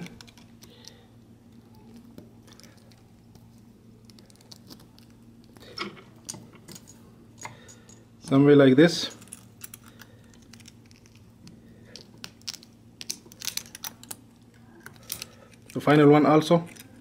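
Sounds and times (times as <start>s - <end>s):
small clicks and scratching: 0.0s - 5.6s
low steady hum: 0.0s - 17.0s.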